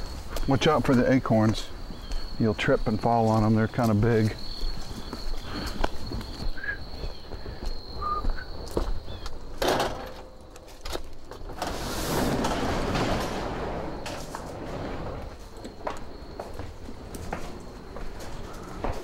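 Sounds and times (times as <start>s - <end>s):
light footsteps: 0.0s - 9.6s, 15.2s - 19.0s
garage door rumbling up: 11.5s - 16.0s.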